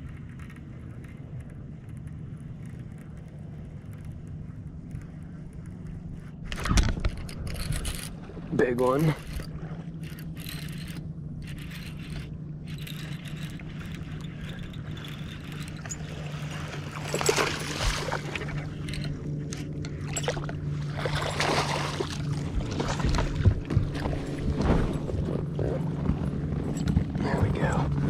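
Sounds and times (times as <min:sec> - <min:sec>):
steady low hum: 0:00.0 - 0:28.0
fish splashing at water surface: 0:20.1 - 0:23.5.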